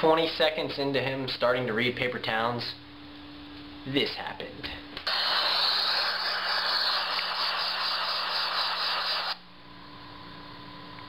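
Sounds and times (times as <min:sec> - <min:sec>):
loud static hiss: 0:05.0 - 0:09.4.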